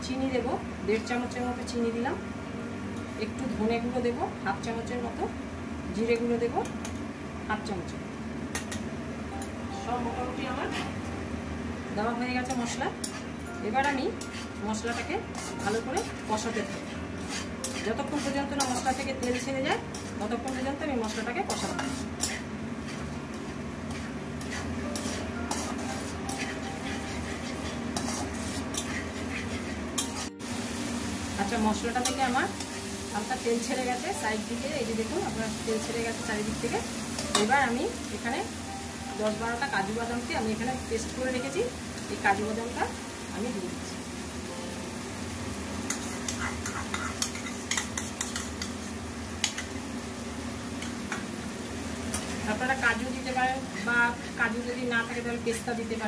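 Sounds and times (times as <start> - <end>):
low sizzle of frying: 0.0 - 56.0
metal spatula scraping pan: 13.0 - 13.3, 14.1 - 30.3, 45.9 - 48.9.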